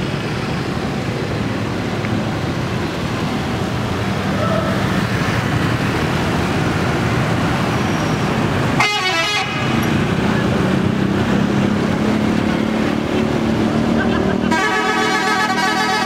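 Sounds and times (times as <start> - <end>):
traffic noise: 0.0 - 16.0
horn toot: 14.4 - 16.0.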